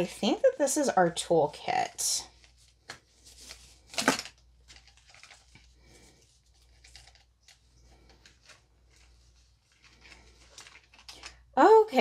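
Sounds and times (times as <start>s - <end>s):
packaging rustling: 2.4s - 11.5s.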